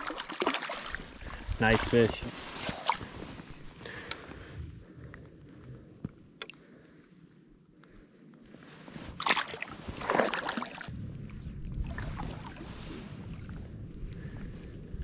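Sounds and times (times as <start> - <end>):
water sloshing and splashing: 0.0 - 3.8, 9.0 - 13.8
wind rumble on microphone: 1.0 - 6.2, 10.8 - 15.0.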